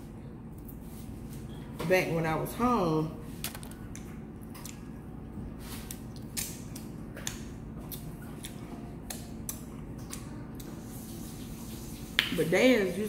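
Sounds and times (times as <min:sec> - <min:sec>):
low steady hum: 0:00.0 - 0:13.0
chewing crispy fried chicken: 0:05.7 - 0:11.0.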